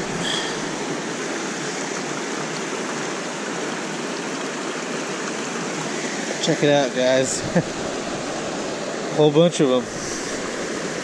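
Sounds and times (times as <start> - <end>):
water rushing over rocks: 0.0 - 11.0.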